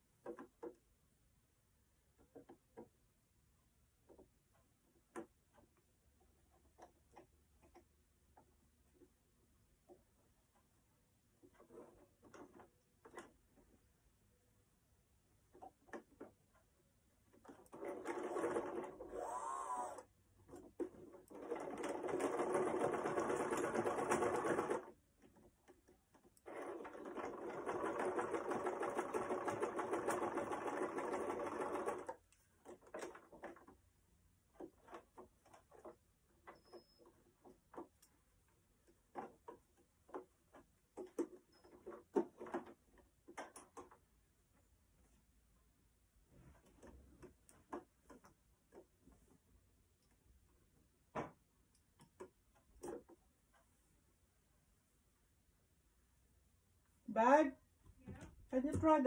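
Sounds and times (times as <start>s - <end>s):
sewing machine stitching: 17.3s - 33.8s.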